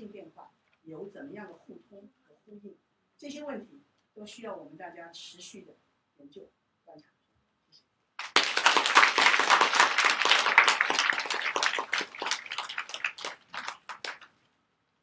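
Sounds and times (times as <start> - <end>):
audience applauding: 8.2 - 14.3.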